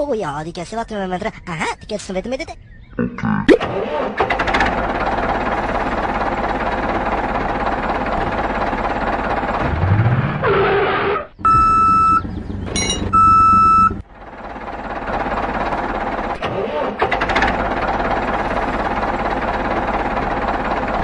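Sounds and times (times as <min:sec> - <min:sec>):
steady engine running: 0:03.6 - 0:10.6, 0:11.4 - 0:21.0
long electronic beeps: 0:11.4 - 0:14.0.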